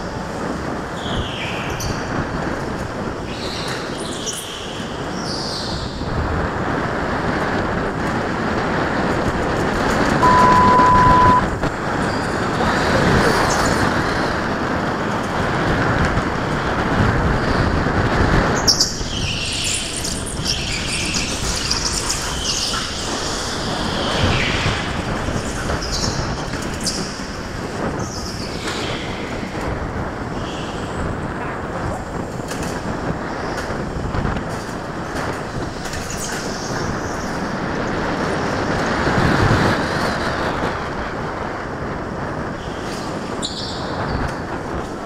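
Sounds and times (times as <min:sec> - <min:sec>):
go-kart motor rumble: 0:00.0 - 0:45.0
high beep: 0:10.2 - 0:11.5.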